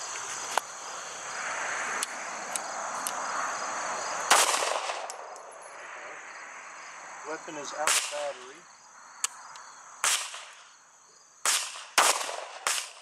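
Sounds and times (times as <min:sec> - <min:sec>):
insects buzzing: 0:00.0 - 0:13.0
pistol shot: 0:04.3 - 0:05.2, 0:07.8 - 0:08.3, 0:10.0 - 0:10.6, 0:11.4 - 0:13.0.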